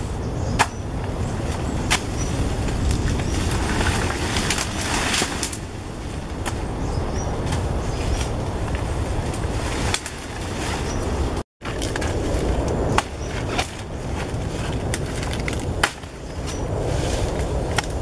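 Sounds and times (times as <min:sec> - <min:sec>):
steady low rumble: 0:00.0 - 0:18.0
knife chopping banana trunk: 0:00.6 - 0:00.9.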